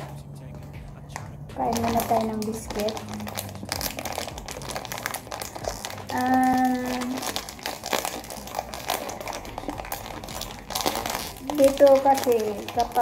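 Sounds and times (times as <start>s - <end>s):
plastic wrapper crinkling: 1.6s - 13.0s
person humming: 5.6s - 7.4s.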